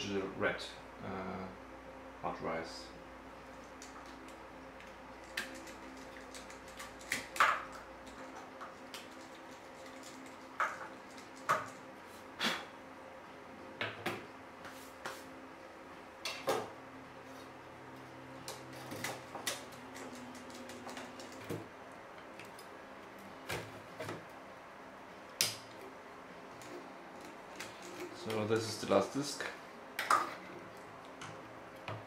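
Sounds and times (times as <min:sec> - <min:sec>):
hard drives and metal trays clacking: 0:25.3 - 0:32.0.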